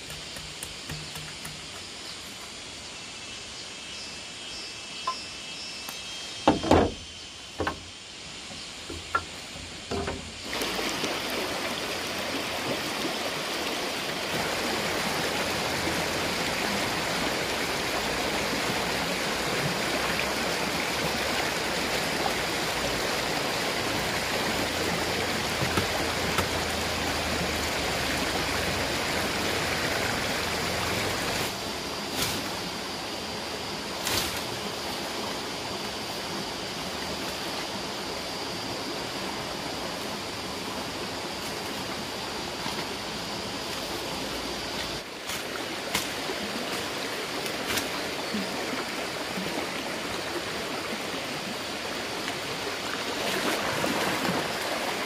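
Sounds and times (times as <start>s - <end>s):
sharp knocks: 0.1s - 1.8s, 6.4s - 7.0s, 7.6s - 7.9s, 8.9s - 10.3s
stream flowing: 7.5s - 55.0s.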